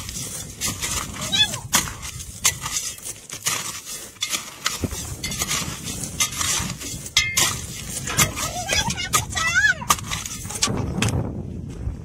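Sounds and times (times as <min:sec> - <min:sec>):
stones clinking: 0:00.0 - 0:10.9
shovel scraping gravel: 0:00.0 - 0:11.0.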